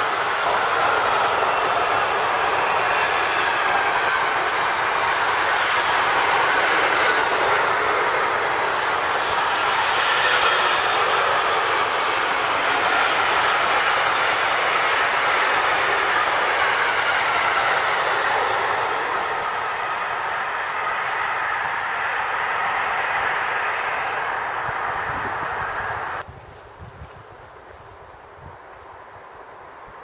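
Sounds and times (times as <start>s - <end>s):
freight train wheels on rail: 0.0s - 30.0s.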